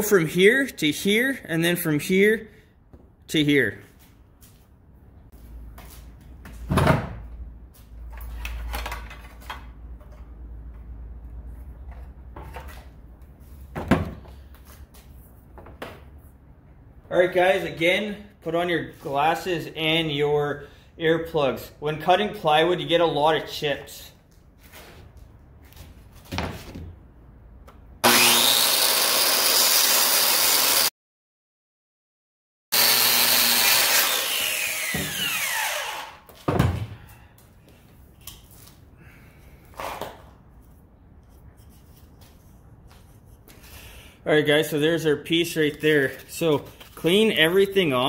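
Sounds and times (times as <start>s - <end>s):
circular saw running: 28.0s - 30.9s, 32.8s - 36.2s.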